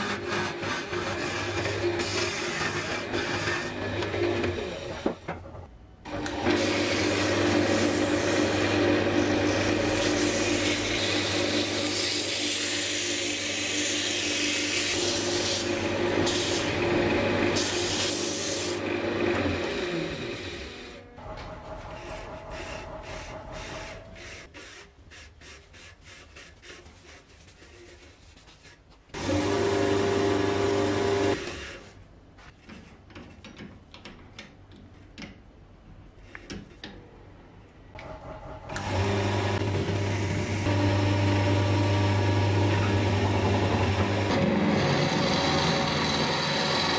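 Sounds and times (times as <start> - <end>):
sandpaper scraping on lathe: 6.5 - 16.8, 17.6 - 18.8, 22.0 - 28.8
lathe motor hum: 29.2 - 31.4, 38.7 - 46.9.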